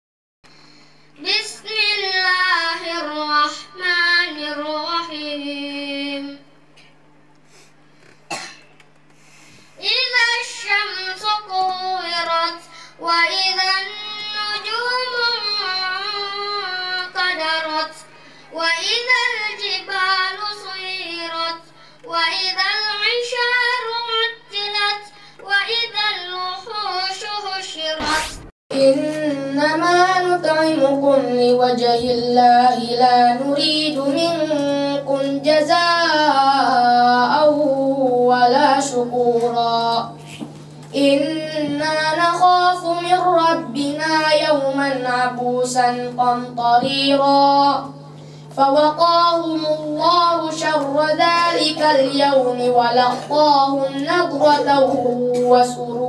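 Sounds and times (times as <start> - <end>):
steady low hum: 0.5 - 56.0
boy chanting into a microphone: 9.8 - 28.0, 28.8 - 56.0
short sharp sound: 28.0 - 28.5.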